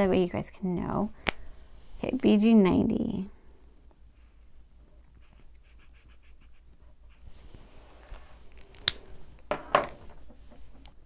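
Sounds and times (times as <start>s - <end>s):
marker scratching on paper: 5.2s - 7.3s.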